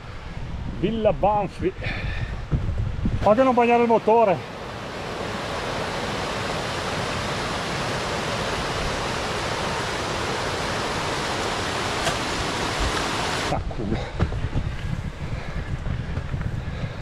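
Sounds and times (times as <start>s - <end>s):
mountain stream flowing: 3.2s - 14.4s.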